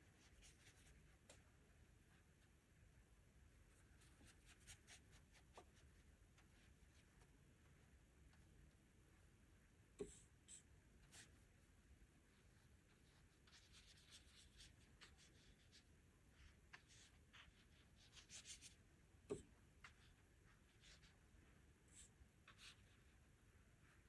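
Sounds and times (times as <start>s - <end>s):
brush strokes on paper: 12.2s - 18.8s.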